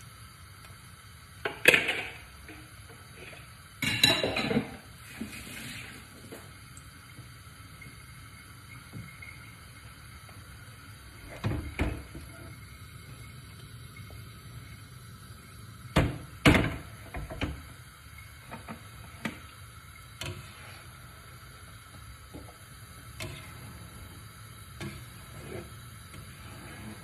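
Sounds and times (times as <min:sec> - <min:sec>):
faint steady hiss: 0:00.0 - 0:27.0
clicks and taps of utensils: 0:01.4 - 0:02.6
frying pan knocking on hob grate: 0:16.0 - 0:17.6.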